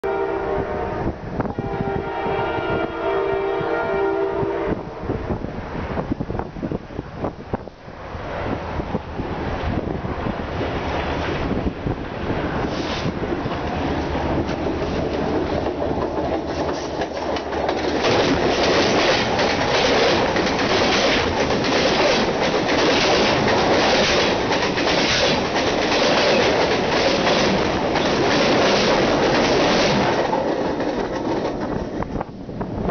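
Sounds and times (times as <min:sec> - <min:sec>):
train rumbling overhead: 0:00.0 - 0:32.9
wheels clicking over track: 0:13.0 - 0:32.3.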